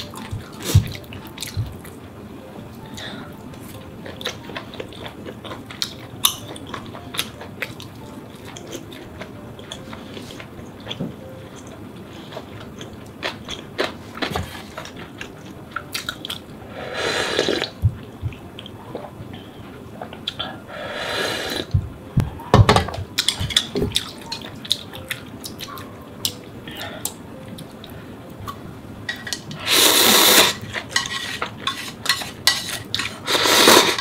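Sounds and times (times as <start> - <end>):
chewing with clicks and smacks: 3.8 - 16.5
slurping broth: 16.8 - 17.8, 20.9 - 21.7, 29.6 - 34.0.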